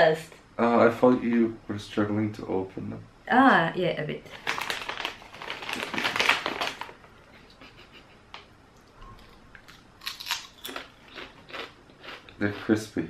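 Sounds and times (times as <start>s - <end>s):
crisp crunching: 4.3s - 7.0s, 9.2s - 12.2s
plastic crisp bag rustling: 4.3s - 7.1s.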